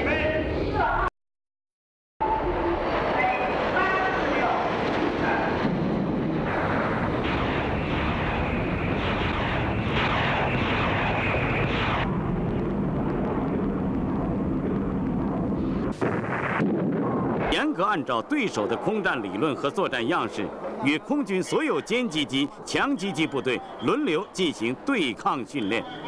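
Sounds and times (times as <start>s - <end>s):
jet aircraft engine rushing: 2.2s - 17.6s.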